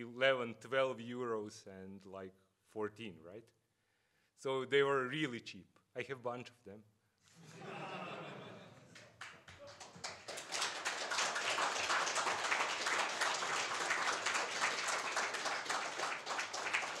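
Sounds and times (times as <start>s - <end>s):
audience applauding: 8.8s - 17.0s.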